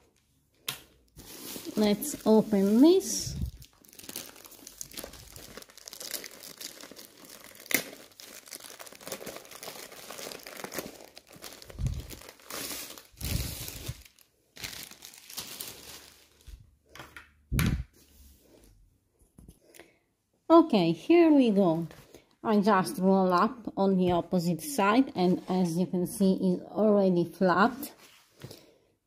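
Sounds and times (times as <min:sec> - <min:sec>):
packaging crinkling and tearing: 0:01.2 - 0:16.6.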